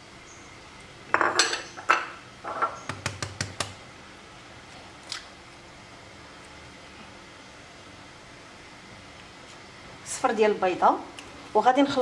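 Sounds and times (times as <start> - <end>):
kitchenware clinking on dishes: 1.1 - 2.8.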